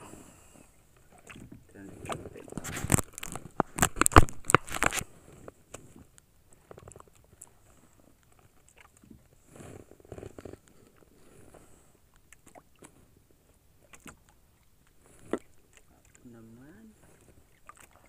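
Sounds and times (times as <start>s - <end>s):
crackling rustle: 0.6s - 14.2s.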